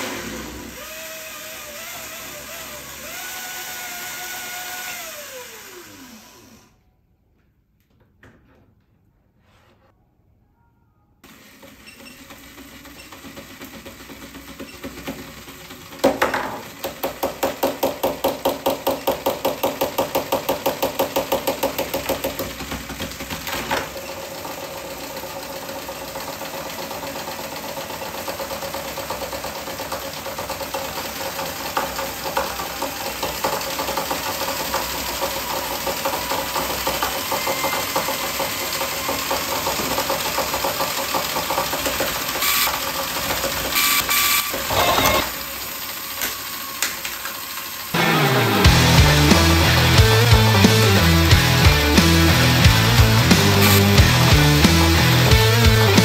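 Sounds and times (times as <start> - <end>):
toy motor and gearbox rattling: 27.6 - 48.0, 52.8 - 55.1.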